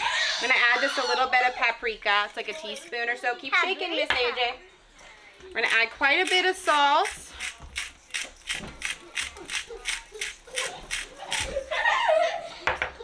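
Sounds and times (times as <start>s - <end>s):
salt grinder crunching rattle: 5.6s - 11.5s.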